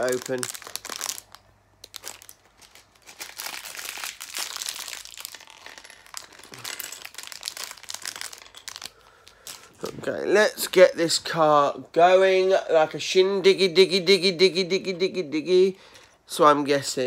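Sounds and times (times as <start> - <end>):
packaging crinkling and rustling: 0.0 - 10.3.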